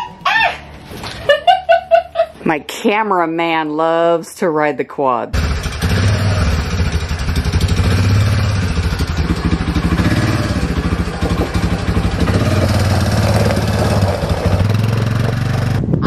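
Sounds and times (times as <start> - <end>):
atv engine running: 5.4 - 16.0.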